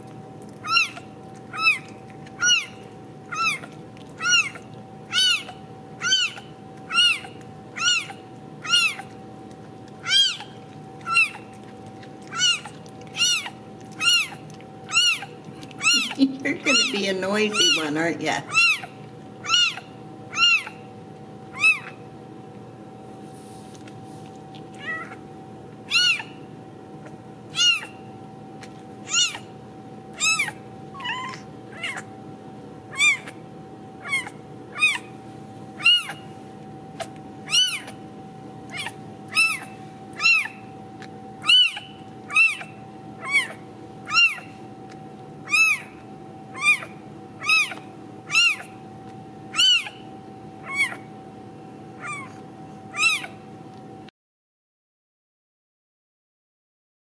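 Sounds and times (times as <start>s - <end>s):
kitten mewing: 0.6s - 9.2s, 9.9s - 20.9s, 21.5s - 22.0s, 24.7s - 28.1s, 29.0s - 29.5s, 30.1s - 32.1s, 32.9s - 33.4s, 34.0s - 35.2s, 35.8s - 38.0s, 38.7s - 40.8s, 41.4s - 44.5s, 45.5s - 48.8s, 49.5s - 51.1s, 52.0s - 53.4s.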